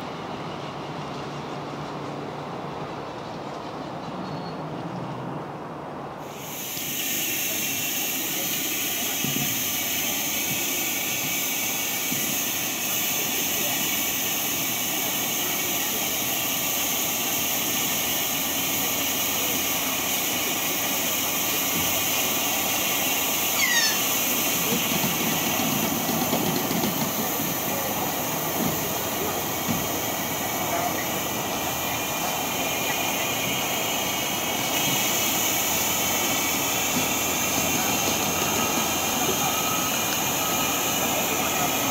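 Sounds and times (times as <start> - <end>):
loud steam hiss: 6.2 - 41.9
short falling whistle: 23.6 - 24.1.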